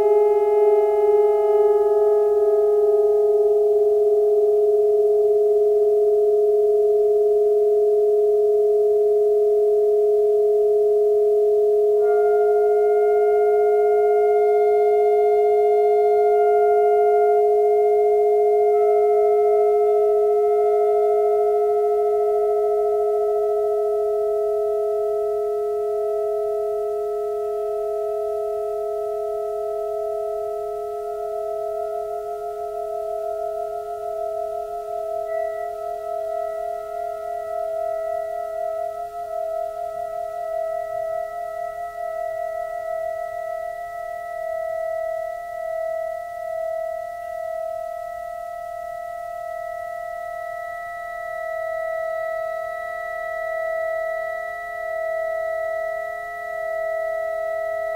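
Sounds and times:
saxophone drone chord: 0.0 - 4.1, 12.0 - 27.0.

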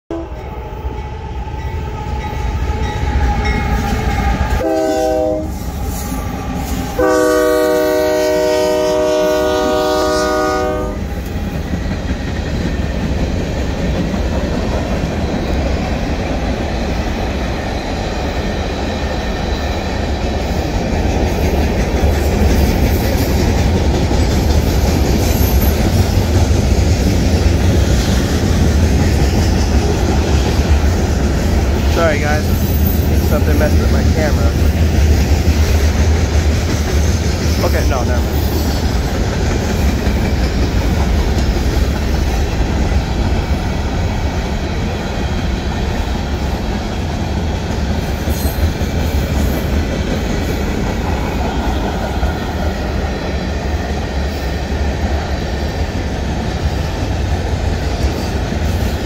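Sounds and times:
train wheels rumbling on rails: 0.2 - 59.0
train air horn blasts: 4.1 - 11.0.

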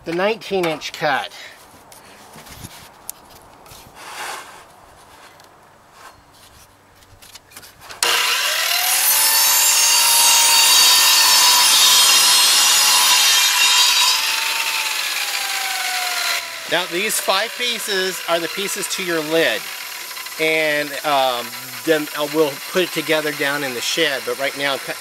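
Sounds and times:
radial arm saw cutting wood: 8.0 - 25.0
saw motor whining up: 8.0 - 25.0.

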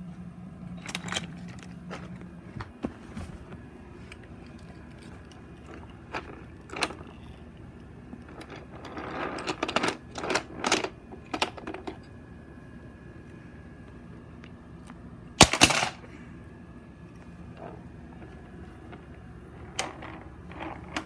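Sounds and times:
toy trains clattering on track: 4.5 - 7.4, 8.2 - 12.0.

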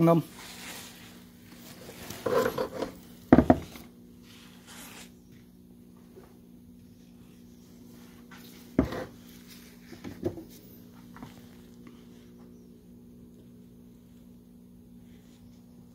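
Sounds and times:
metal knocking on wooden bench: 3.3 - 3.7.

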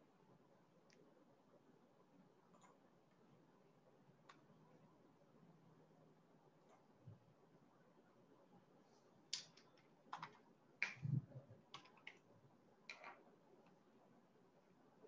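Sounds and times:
keyboard and mouse clicking: 9.3 - 12.3, 12.9 - 13.8.

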